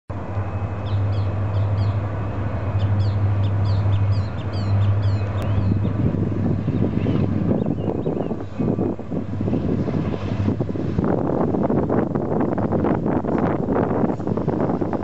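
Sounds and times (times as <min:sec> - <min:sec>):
distant diesel locomotive drone: 0:00.1 - 0:15.0
birds chirping: 0:00.8 - 0:06.0, 0:06.6 - 0:08.8.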